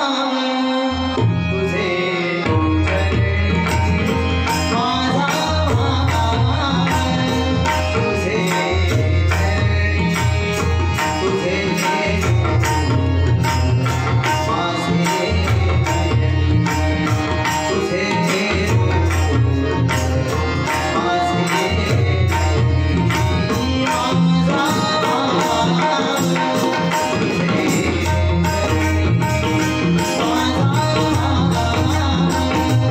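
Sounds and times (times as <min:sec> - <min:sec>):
hand drums playing rhythm: 0:02.8 - 0:32.9.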